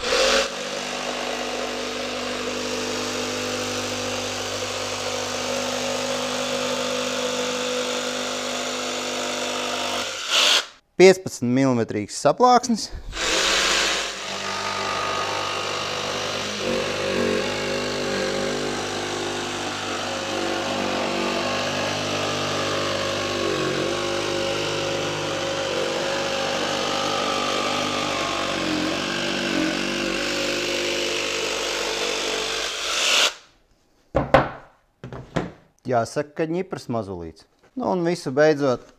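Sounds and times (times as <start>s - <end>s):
jigsaw cutting plywood: 0.0s - 10.8s, 13.1s - 33.5s.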